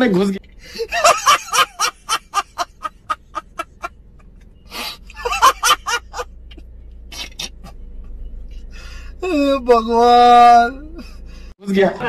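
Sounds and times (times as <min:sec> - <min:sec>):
man laughing: 0:00.7 - 0:03.9, 0:04.8 - 0:06.3.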